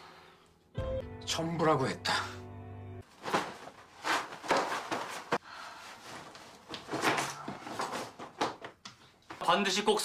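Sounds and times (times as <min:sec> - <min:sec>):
clothing rustling and swishing: 0:03.0 - 0:09.4.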